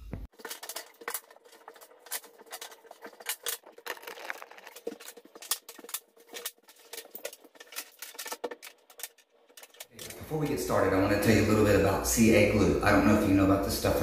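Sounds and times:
handling clicks and knocks: 0:00.0 - 0:10.3.

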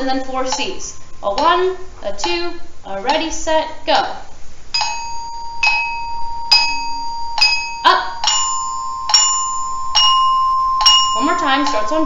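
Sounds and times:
glockenspiel notes ringing: 0:04.8 - 0:12.0.

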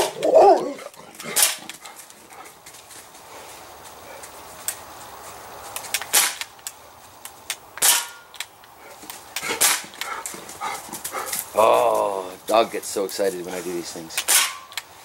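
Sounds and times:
air pistol shots cracking: 0:01.3 - 0:01.7, 0:06.0 - 0:06.5, 0:07.8 - 0:08.5, 0:09.4 - 0:10.0, 0:14.2 - 0:14.8.

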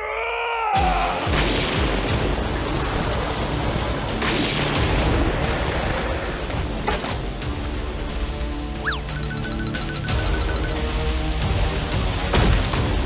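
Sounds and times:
rapid machine-gun fire: 0:01.4 - 0:06.6.

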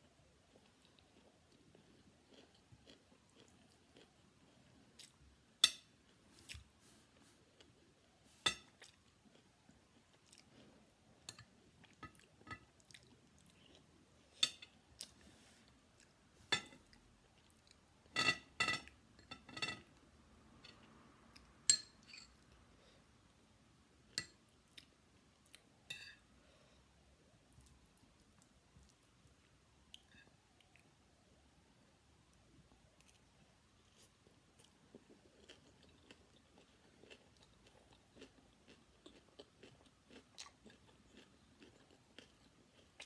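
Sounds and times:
soft chewing: 0:00.0 - 0:20.0, 0:24.1 - 0:43.0
spoon clinking on ceramic plate: 0:21.7 - 0:22.4.

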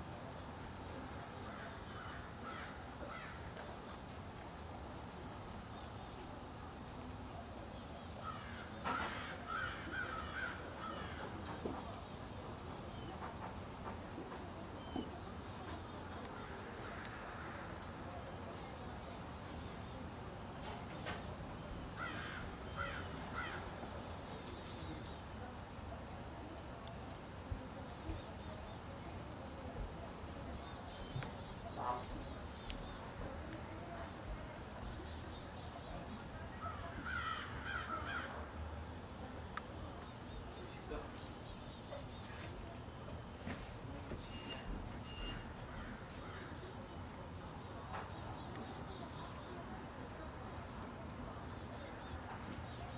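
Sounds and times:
high insect drone: 0:00.0 - 0:52.9
harsh bird calls: 0:21.7 - 0:25.1.

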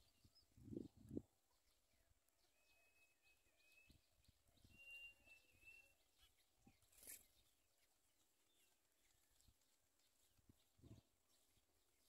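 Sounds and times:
distant birds chirping: 0:01.5 - 0:12.0
thin high whistle: 0:04.7 - 0:05.9.

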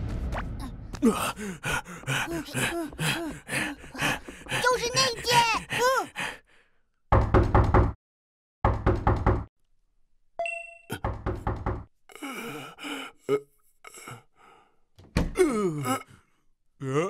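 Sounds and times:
knocking on wooden door: 0:07.1 - 0:08.0, 0:08.6 - 0:09.5, 0:11.1 - 0:11.9.

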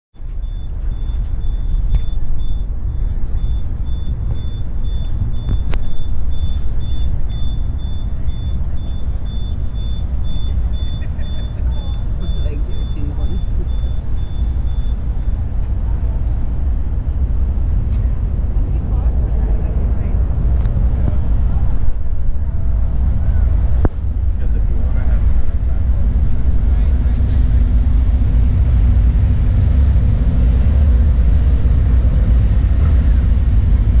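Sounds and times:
faint high beeping: 0:00.2 - 0:15.6
loud low rumble: 0:00.2 - 0:34.0
wind buffeting microphone: 0:00.3 - 0:34.0.

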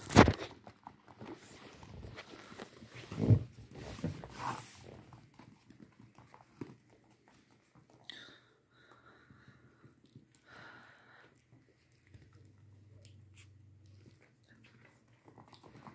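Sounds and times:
paws scrabbling on laminate floor: 0:00.4 - 0:08.1, 0:11.6 - 0:15.9.

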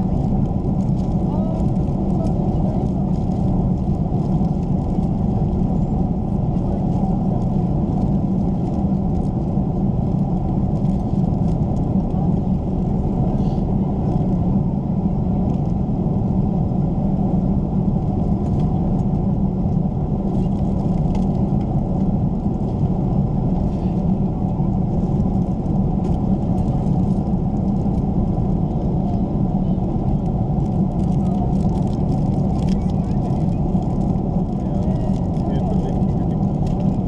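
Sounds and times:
low rumble of engines and airflow: 0:00.0 - 0:37.0.

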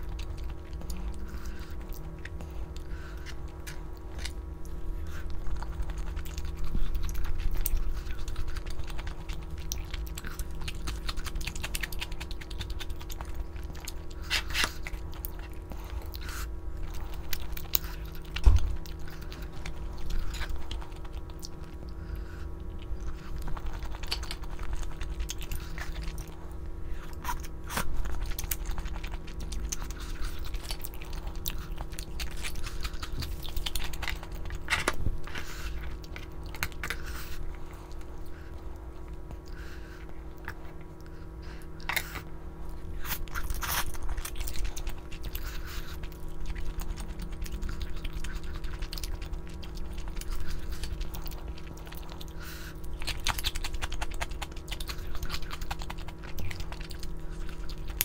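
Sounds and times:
person chewing: 0:00.0 - 0:58.0
steady low hum: 0:00.0 - 0:58.0.

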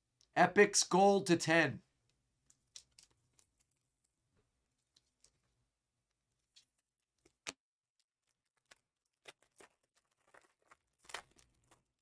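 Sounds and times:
foil wrapper tearing and crinkling: 0:08.2 - 0:12.0.

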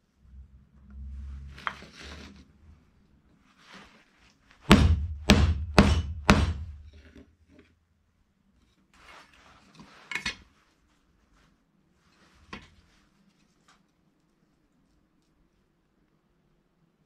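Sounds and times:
wooden pieces scraping: 0:01.5 - 0:02.5
hammer blows on wood: 0:04.7 - 0:06.9.

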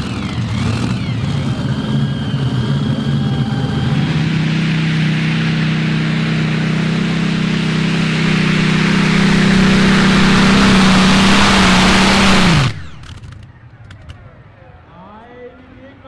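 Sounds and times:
pulling tractor engine at full throttle: 0:00.0 - 0:13.4
loud hiss: 0:04.2 - 0:13.1.

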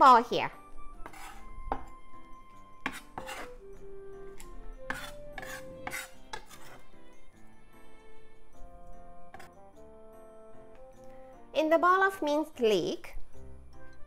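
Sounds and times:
quiet background music: 0:00.0 - 0:14.0
knife scraping on wooden board: 0:01.0 - 0:02.0, 0:02.6 - 0:03.7, 0:04.3 - 0:07.1, 0:09.3 - 0:09.6.

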